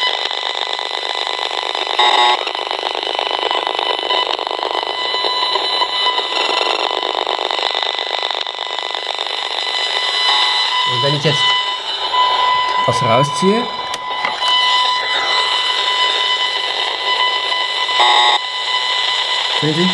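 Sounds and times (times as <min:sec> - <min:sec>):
meter crackling buzz with high tones: 0:00.0 - 0:19.9
beeping chirp: 0:10.1 - 0:18.4.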